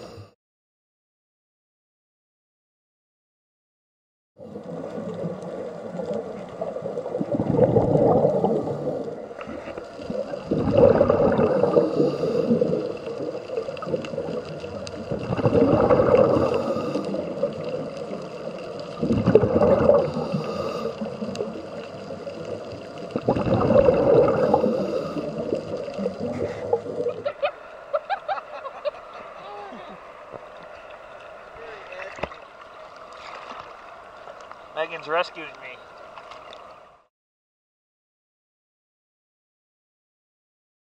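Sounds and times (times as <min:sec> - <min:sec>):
scuba regulator bubbling exhalations: 0:04.4 - 0:28.1.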